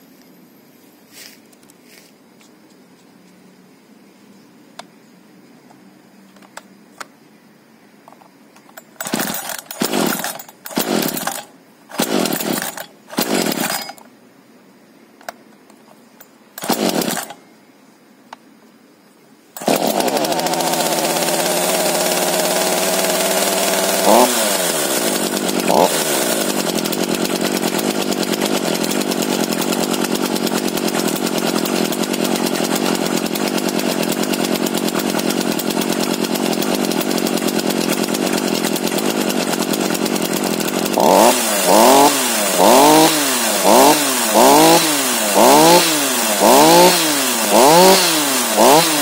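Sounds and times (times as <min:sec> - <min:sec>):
chainsaw engine revving: 0:08.7 - 0:14.0, 0:16.6 - 0:17.4, 0:19.6 - 0:49.0
chainsaw idling: 0:08.7 - 0:14.1, 0:16.5 - 0:17.4, 0:19.6 - 0:49.0.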